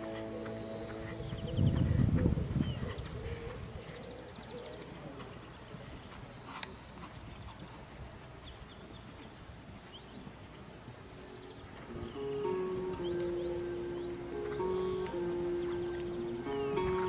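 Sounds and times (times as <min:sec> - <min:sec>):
horse hoofbeats on sand: 0:00.0 - 0:17.0.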